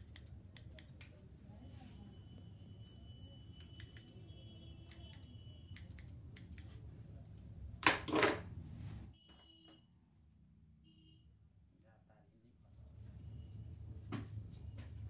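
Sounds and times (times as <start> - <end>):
scissors snipping hair: 0.0 - 1.2, 3.6 - 4.2, 4.8 - 7.4.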